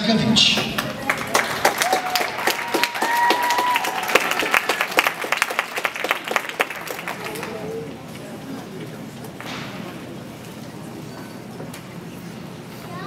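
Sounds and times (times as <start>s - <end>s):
audience clapping: 0.4s - 8.1s
people cheering: 0.8s - 8.0s.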